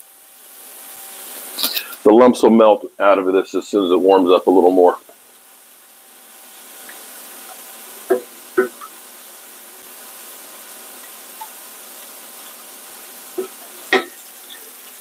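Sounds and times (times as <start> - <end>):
food sizzling in a pan: 0.0 - 15.0
sharp knocks: 8.1 - 8.9.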